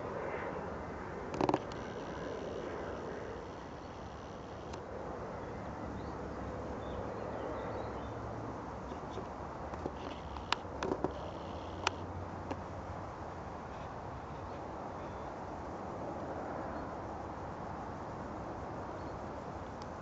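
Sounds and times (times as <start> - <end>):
sharp clicks: 1.3 - 4.8, 9.7 - 12.0.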